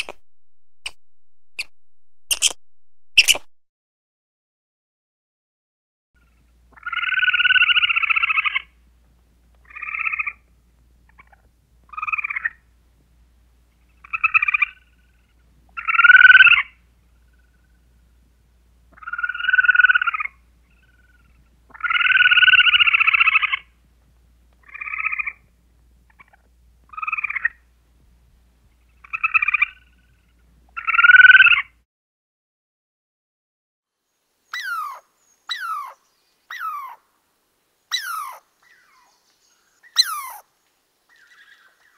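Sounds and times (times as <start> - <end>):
animal calls: 6.7 - 8.7, 13.9 - 17.8, 18.9 - 23.7, 28.9 - 31.7, 34.6 - 37.0, 37.9 - 39.1, 39.9 - 40.5.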